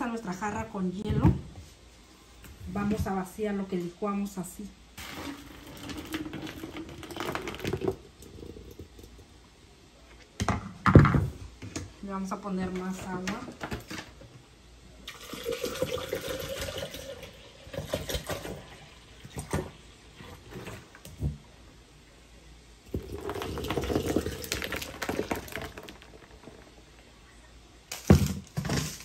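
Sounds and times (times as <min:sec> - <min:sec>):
water pouring into a pitcher: 0:05.0 - 0:09.1, 0:15.0 - 0:19.8, 0:22.9 - 0:26.8.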